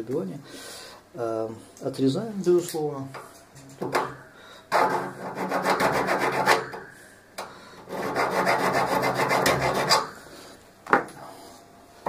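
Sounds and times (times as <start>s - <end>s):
needle file rasping on copper tube: 4.7s - 6.6s, 7.9s - 10.1s.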